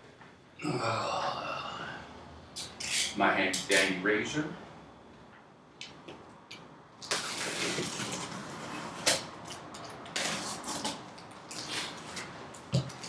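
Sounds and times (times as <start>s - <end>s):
box cutter slicing packing tape: 7.0s - 8.4s, 10.0s - 11.0s.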